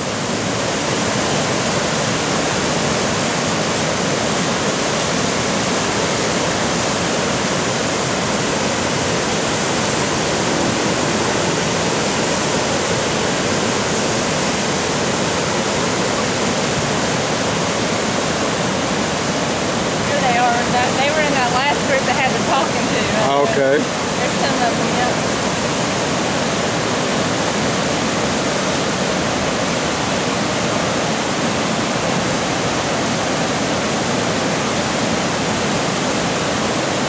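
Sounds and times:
river rapids rushing: 0.0s - 37.0s.

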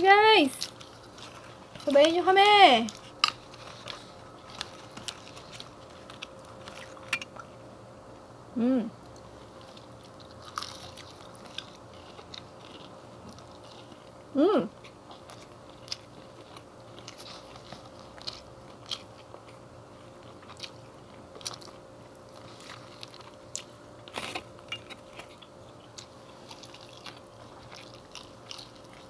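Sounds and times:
faint steady hum: 0.0s - 29.0s
fried chicken crunching: 0.6s - 7.2s, 9.1s - 14.2s, 14.8s - 29.0s
chewing mouth sounds: 20.2s - 29.0s.

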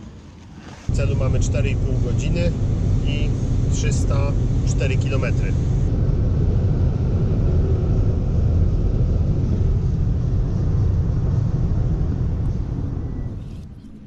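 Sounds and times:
car engine and road noise: 0.0s - 14.0s.

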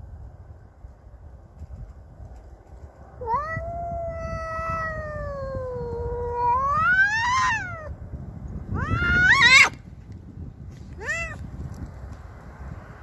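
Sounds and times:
cat yowling: 3.2s - 7.9s, 8.7s - 9.8s, 11.0s - 11.4s.

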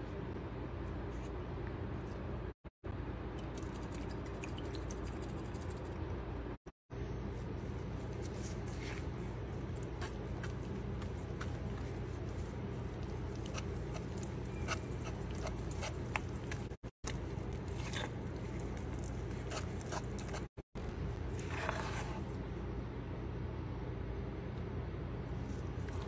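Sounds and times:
steady low hum: 0.0s - 26.0s
wooden spoon stirring paste in pot: 7.4s - 20.5s, 21.3s - 22.4s.

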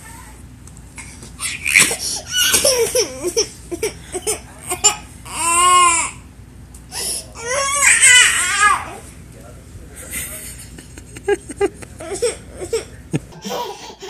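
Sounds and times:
toddler wailing cry: 1.4s - 3.9s, 4.8s - 6.2s, 7.4s - 9.0s.

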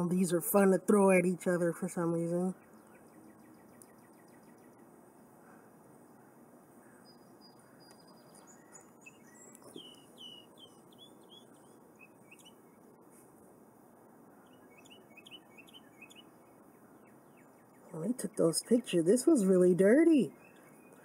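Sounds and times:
low steady hiss: 0.0s - 21.0s
small bird chirping: 2.2s - 4.9s, 6.8s - 13.0s, 14.4s - 21.0s.

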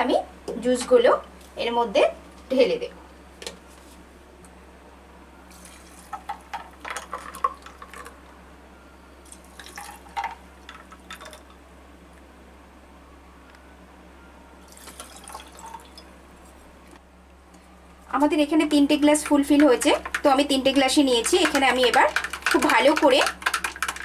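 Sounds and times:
juice pouring over ice: 5.5s - 8.2s, 9.2s - 11.6s, 14.7s - 16.1s.

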